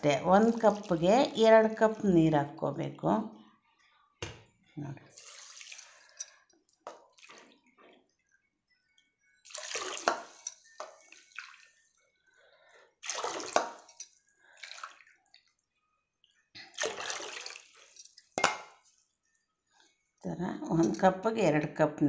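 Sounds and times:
water pouring onto sugar: 5.1 - 6.2, 7.1 - 7.7, 9.4 - 11.9, 13.0 - 15.5, 16.6 - 18.2.

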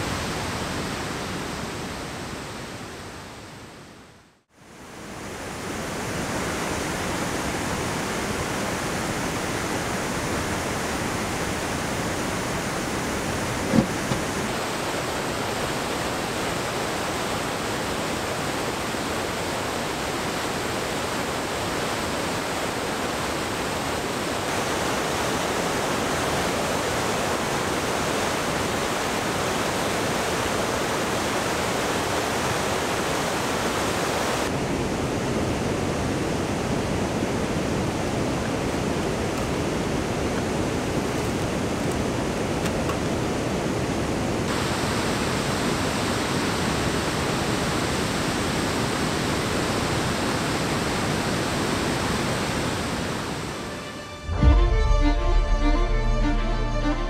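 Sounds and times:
waterfall rushing: 4.7 - 42.5, 43.1 - 57.0.

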